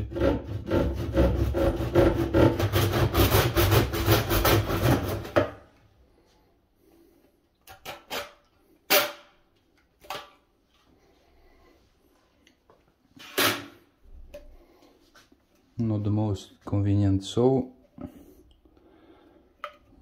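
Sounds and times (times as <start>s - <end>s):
handsaw rasping through plastic: 0.0s - 5.6s.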